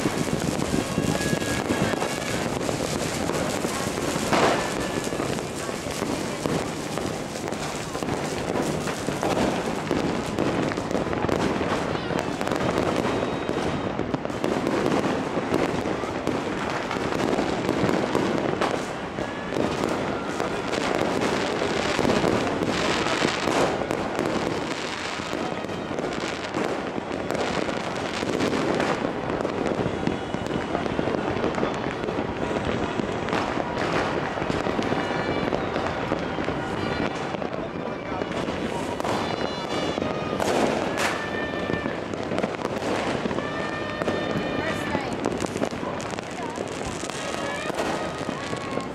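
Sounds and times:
fireworks crackling and banging: 0.0 - 48.9.

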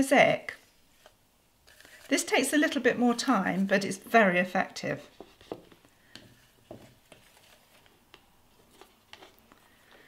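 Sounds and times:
paper rustling and tapping: 5.1 - 10.0.

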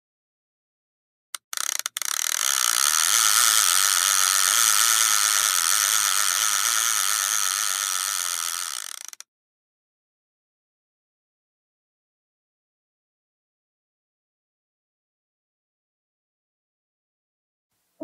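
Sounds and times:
short clicks: 1.4 - 2.6
buzzing grinding noise: 1.4 - 9.2.

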